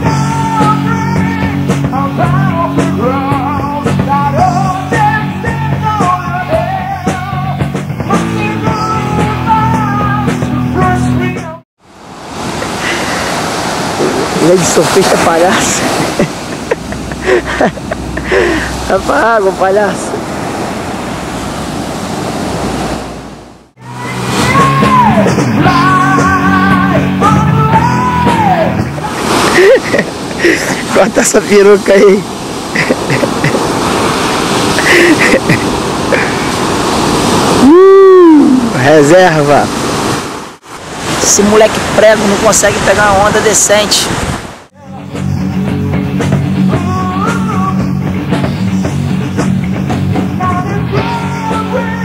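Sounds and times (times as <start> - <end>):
rock music: 0.0 - 11.6, 23.8 - 29.4, 45.0 - 52.0
surf rushing on a beach: 0.0 - 52.0.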